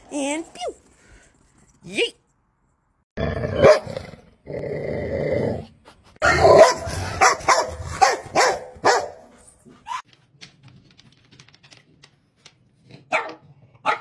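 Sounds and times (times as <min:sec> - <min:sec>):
dog barking and snarling: 0:03.4 - 0:04.1, 0:05.1 - 0:10.0, 0:13.0 - 0:14.0.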